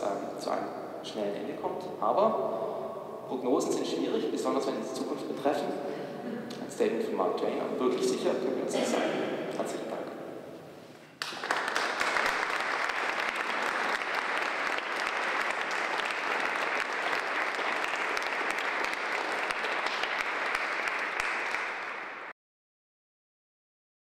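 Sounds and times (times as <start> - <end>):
audience applauding: 11.2 - 22.3.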